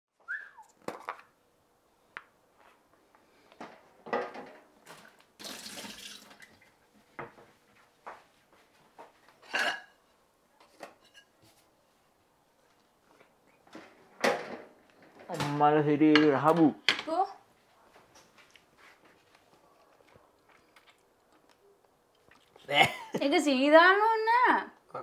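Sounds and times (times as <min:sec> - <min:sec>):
dishes and utensils clinking: 0:09.4 - 0:11.4.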